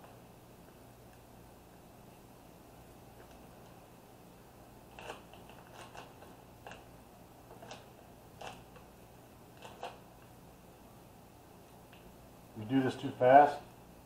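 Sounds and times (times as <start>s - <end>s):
low steady hum: 0.0s - 14.0s
tape crackling when pressed: 4.9s - 10.3s.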